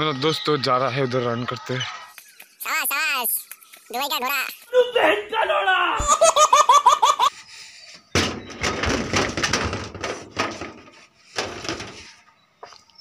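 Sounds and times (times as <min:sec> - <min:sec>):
baby laughing: 0:06.0 - 0:07.3.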